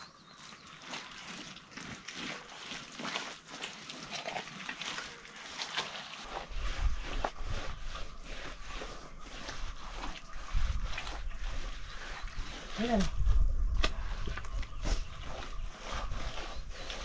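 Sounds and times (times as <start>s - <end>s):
wet mud slaps and swishes: 13.7s - 15.1s.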